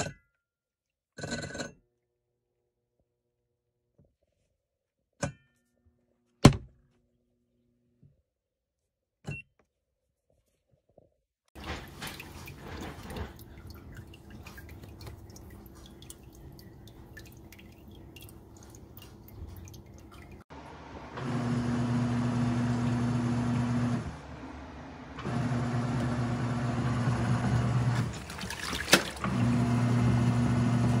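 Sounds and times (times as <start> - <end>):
washing machine motor humming: 11.6 - 31.0
faint drips and ticks: 12.1 - 20.4.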